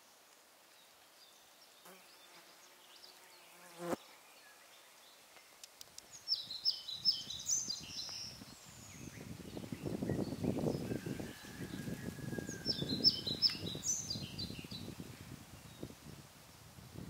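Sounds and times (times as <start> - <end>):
flying insect buzzing: 1.8 - 4.1.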